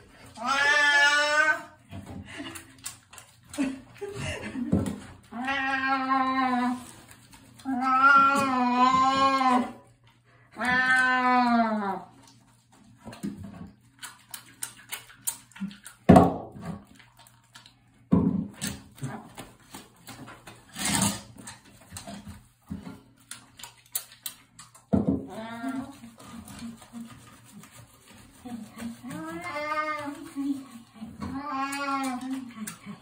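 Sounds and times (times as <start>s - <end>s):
cat yowling: 0.4s - 1.7s.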